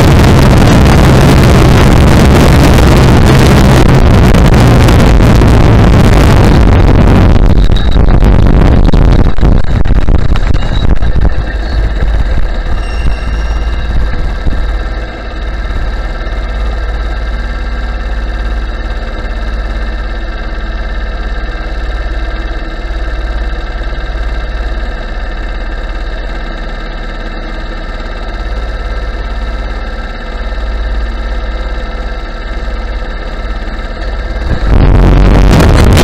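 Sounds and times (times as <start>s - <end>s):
go-kart engine idling: 8.9s - 35.2s.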